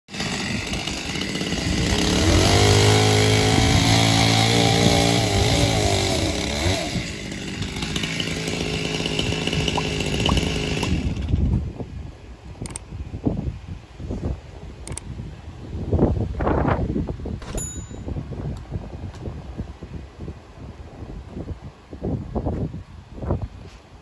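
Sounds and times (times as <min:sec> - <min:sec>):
chainsaw cutting timber: 0:00.1 - 0:11.7.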